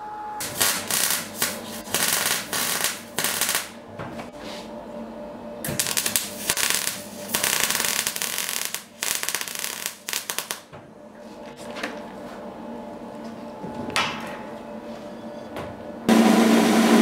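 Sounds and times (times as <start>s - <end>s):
welding arc crackling: 0.4s - 3.8s, 5.7s - 10.7s.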